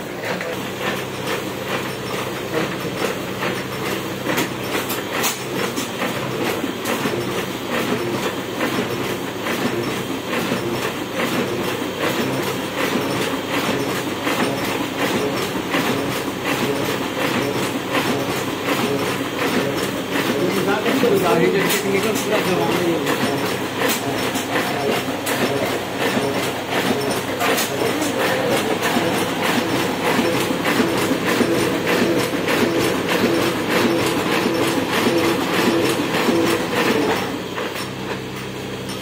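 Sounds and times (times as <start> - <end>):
mechanical hum: 0.0 - 39.0
printing press clattering: 0.0 - 39.0.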